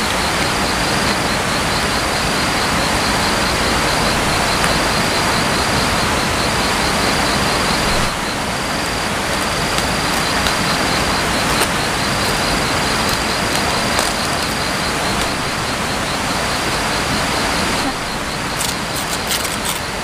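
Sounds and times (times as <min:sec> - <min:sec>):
pulsing insect trill: 0:00.0 - 0:20.0
steady rushing outdoor noise: 0:00.0 - 0:20.0
banana leaves crackling: 0:07.7 - 0:15.7, 0:17.8 - 0:20.0.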